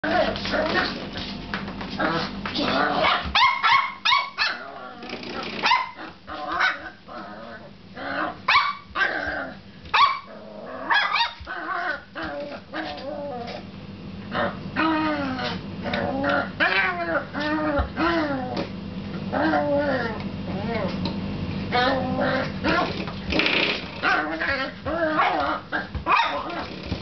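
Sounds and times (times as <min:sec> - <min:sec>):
puppy barking and yapping: 0:02.9 - 0:04.7, 0:05.5 - 0:07.0, 0:08.5 - 0:13.5, 0:24.0 - 0:26.7.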